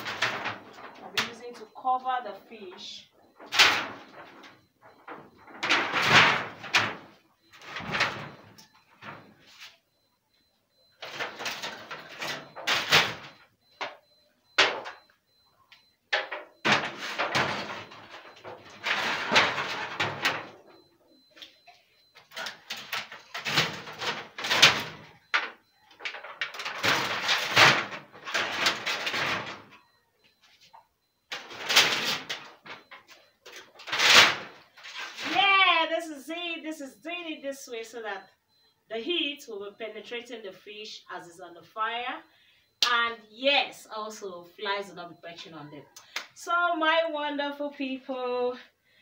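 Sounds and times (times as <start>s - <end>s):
metal sheets scraping and clattering: 0.0s - 1.4s, 3.4s - 9.2s, 16.2s - 20.5s, 26.1s - 29.8s, 33.8s - 35.3s.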